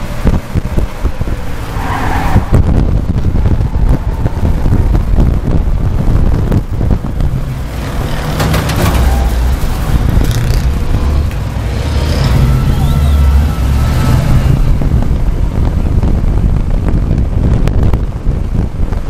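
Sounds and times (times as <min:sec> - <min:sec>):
race car engine running: 0:00.0 - 0:19.0
wind buffeting microphone: 0:00.0 - 0:19.0
car body rattles and knocks: 0:07.8 - 0:11.0.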